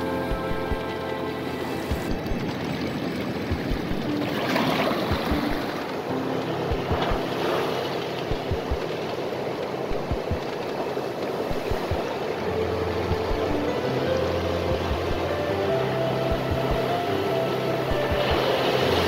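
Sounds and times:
water sloshing in rock pool: 2.4s - 6.0s
low thumps: 3.5s - 4.1s, 6.7s - 7.3s, 8.3s - 8.9s, 9.9s - 10.5s, 11.5s - 12.1s, 13.0s - 13.8s, 14.7s - 15.3s, 16.3s - 16.9s
surf breaking on reef: 6.7s - 9.4s.

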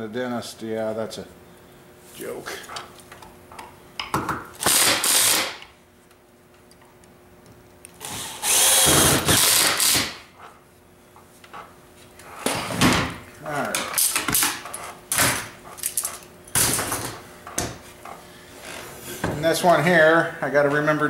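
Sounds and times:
cordless drill driving screws: 4.6s - 5.6s, 8.0s - 10.2s.

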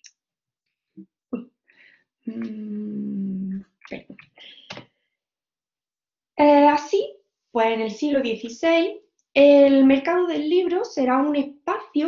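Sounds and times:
person humming: 2.3s - 3.6s.

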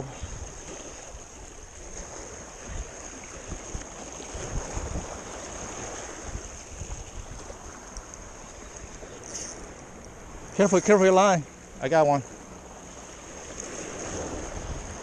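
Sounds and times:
wind buffeting microphone: 0.0s - 11.0s, 12.9s - 15.0s
sea water washing: 0.0s - 15.0s.

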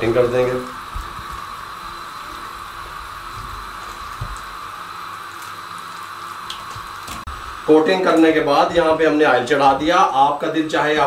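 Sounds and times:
wet squelches of batter: 0.8s - 7.5s.

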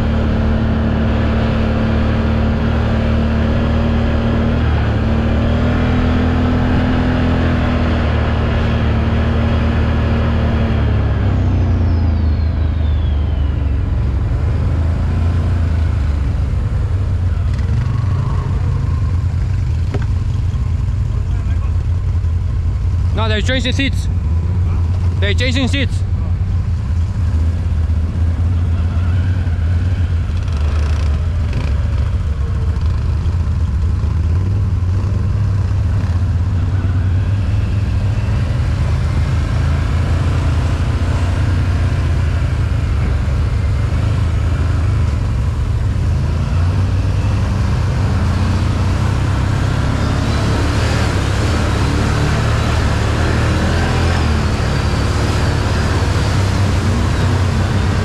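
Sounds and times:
engine deep low drone: 0.0s - 58.0s.

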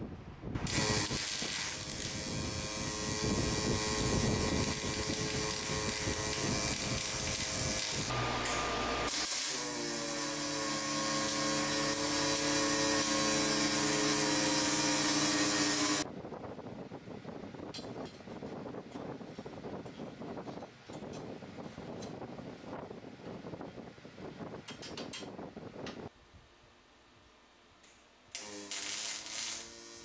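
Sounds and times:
welding arc buzzing: 0.6s - 16.1s, 28.3s - 30.0s.

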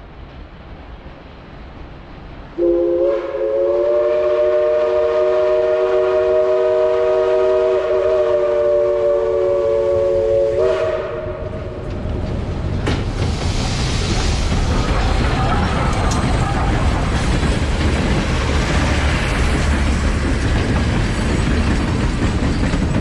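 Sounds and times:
low rumble of approaching train: 0.0s - 23.0s
steam locomotive chime whistle: 2.6s - 11.4s.

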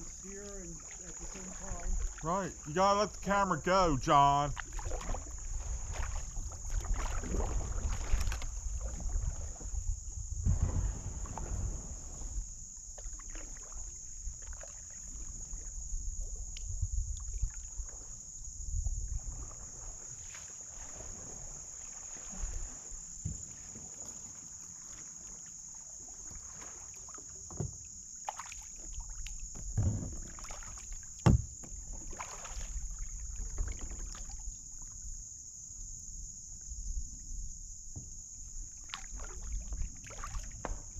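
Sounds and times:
paddle strokes splashing: 0.0s - 35.1s, 38.0s - 40.9s
wind rumble on microphone: 5.0s - 12.7s, 14.2s - 20.1s
sharp knocks: 31.2s - 31.7s.

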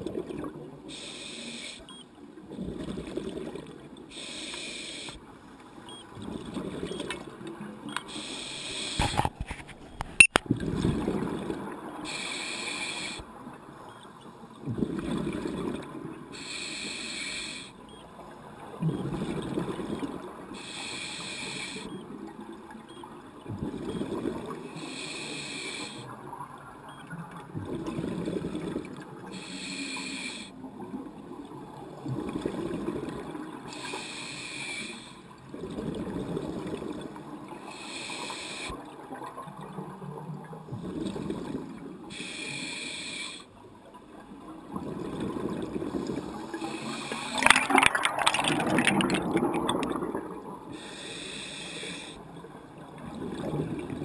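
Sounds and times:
regulator air hiss underwater: 0.9s - 1.9s, 4.1s - 5.2s, 8.1s - 9.3s, 12.0s - 13.3s, 16.3s - 17.8s, 20.6s - 21.9s, 24.8s - 26.1s, 29.3s - 30.6s, 33.7s - 35.3s, 37.6s - 38.8s, 42.1s - 43.6s, 46.0s - 52.4s
exhaust bubbles burbling: 47.2s - 50.6s.

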